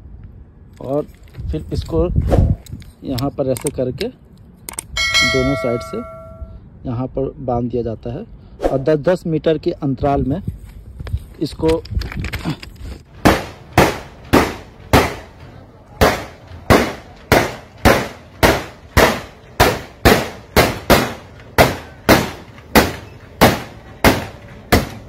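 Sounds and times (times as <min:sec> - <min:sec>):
railway detonators banging: 0:04.7 - 0:06.6, 0:13.0 - 0:25.0.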